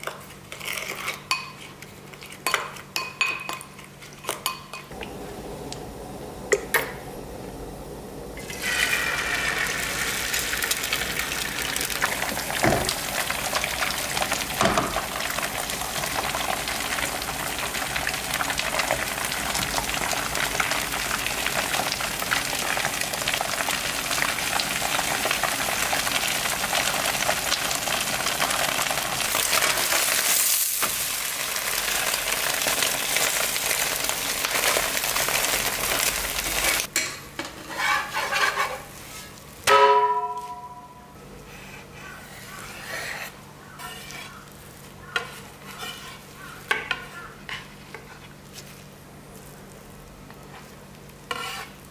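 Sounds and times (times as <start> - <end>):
egg sizzling in a frying pan: 8.4 - 36.9, 43.8 - 51.9.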